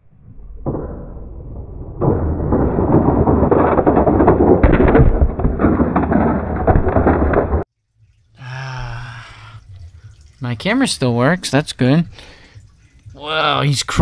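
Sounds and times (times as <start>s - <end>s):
plastic figures knocking and clattering: 2.4s - 7.7s.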